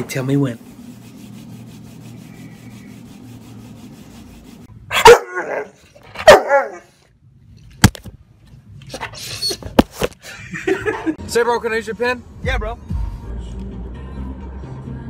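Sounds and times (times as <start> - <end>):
dog barking: 4.9 - 6.9.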